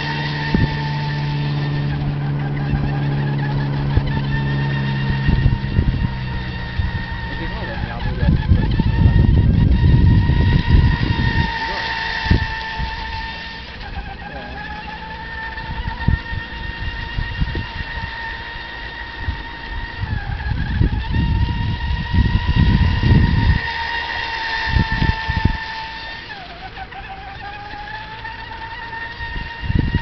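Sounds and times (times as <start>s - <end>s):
toy speedboat motor whining: 0.0s - 30.0s
wind buffeting microphone: 0.0s - 30.0s.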